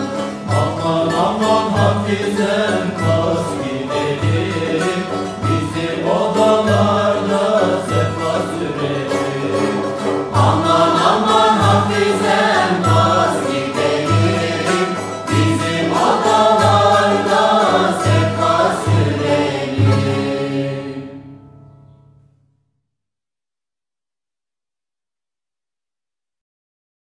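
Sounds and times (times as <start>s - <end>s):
folk song melody: 0.0s - 22.4s.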